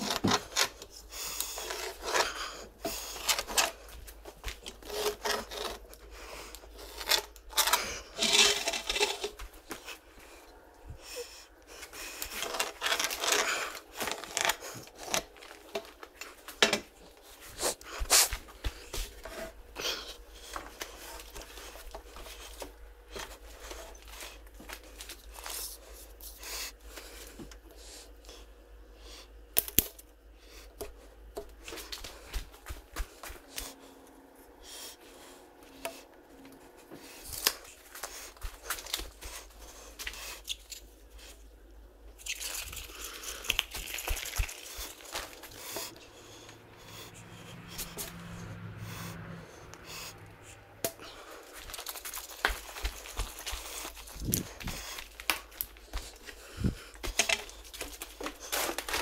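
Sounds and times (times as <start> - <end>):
hand tool scraping on timber: 4.5 - 6.0, 6.8 - 9.9, 44.7 - 49.2.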